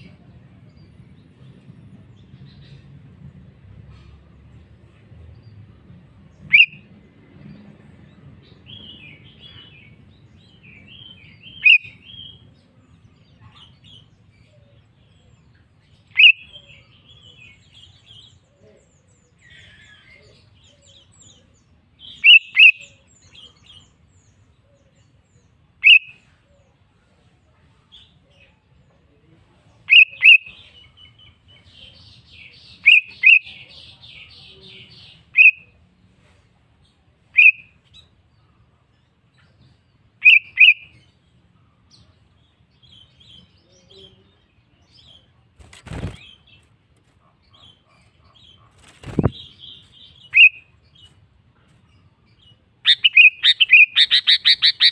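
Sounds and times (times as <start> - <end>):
bird chirping sharply: 6.5 - 6.8, 52.8 - 54.9
soft bird chattering: 52.8 - 54.9.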